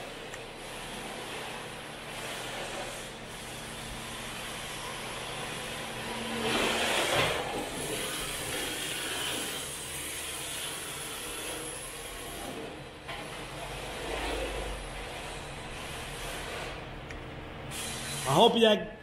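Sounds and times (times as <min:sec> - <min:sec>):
rc car motor whine: 0:00.0 - 0:12.8, 0:17.7 - 0:18.4
tyres scrubbing on concrete: 0:06.2 - 0:12.6, 0:13.6 - 0:16.9.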